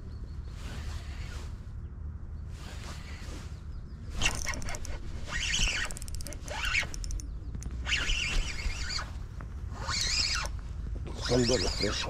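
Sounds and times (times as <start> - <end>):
spinning reel whirring and clicking: 4.2 - 7.3.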